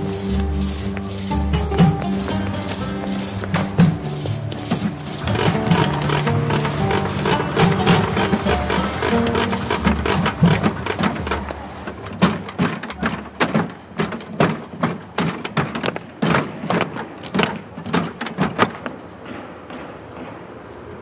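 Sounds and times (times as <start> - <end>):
music: 0.0 - 13.1
thumps and knocks: 3.4 - 20.4.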